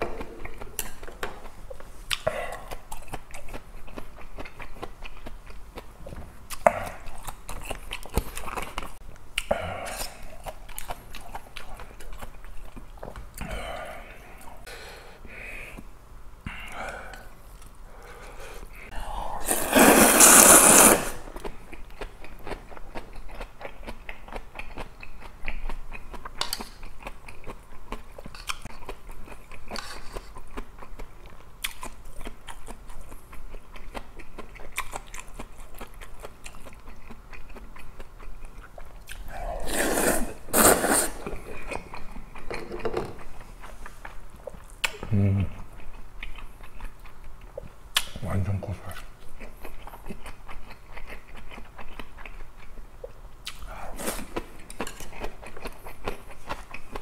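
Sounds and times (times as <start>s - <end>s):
man slurping noodles: 19.2s - 21.3s, 39.3s - 41.4s
wet chewing: 48.8s - 57.0s.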